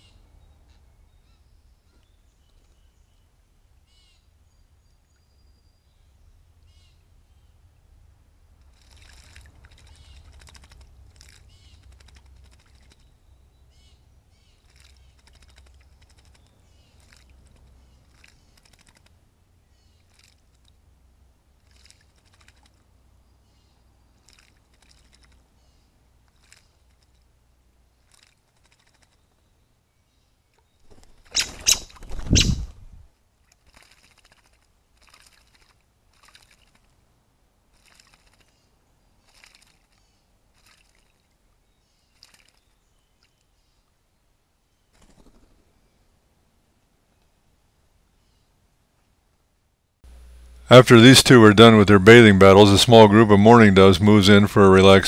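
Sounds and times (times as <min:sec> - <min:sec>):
birds splashing in water: 0:08.6 - 0:13.2, 0:14.6 - 0:19.2, 0:21.6 - 0:22.8, 0:24.2 - 0:25.5, 0:33.4 - 0:37.0, 0:37.6 - 0:41.4, 0:42.1 - 0:43.4.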